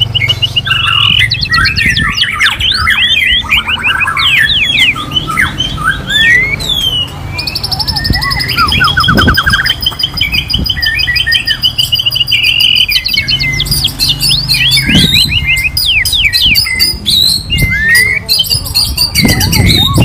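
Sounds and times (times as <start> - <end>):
birds singing trills and whistles: 0.0 - 20.0.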